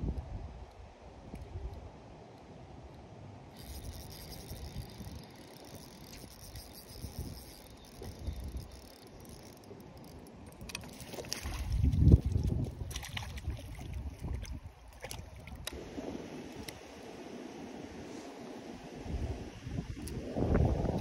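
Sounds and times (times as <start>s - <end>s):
wind buffeting microphone: 11.2s - 16.8s, 18.9s - 21.0s.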